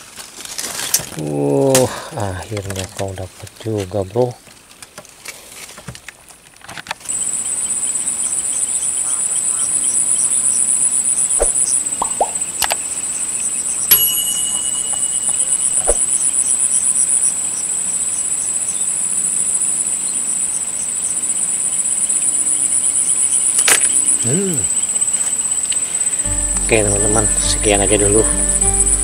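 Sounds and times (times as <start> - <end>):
insects chirring: 7.1 - 29.0.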